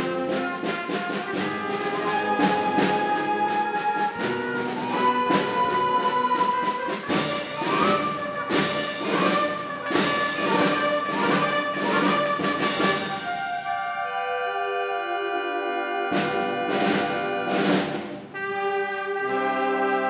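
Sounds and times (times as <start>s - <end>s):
accented percussion strokes: 0.0s - 13.7s, 16.1s - 18.4s
concert band playing: 0.0s - 20.0s.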